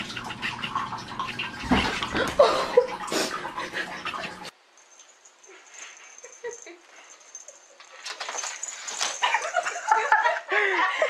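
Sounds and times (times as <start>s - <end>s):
water running and splashing: 0.0s - 4.6s.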